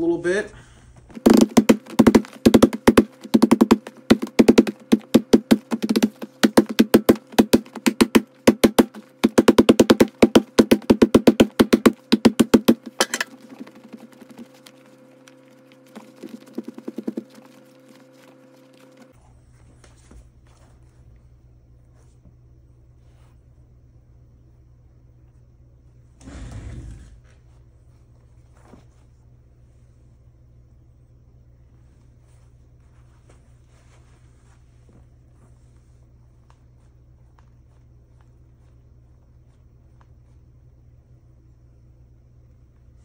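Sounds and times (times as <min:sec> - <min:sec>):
steady hum: 0:00.0 - 0:43.0
leather glove being pounded: 0:01.1 - 0:14.7, 0:16.0 - 0:17.4.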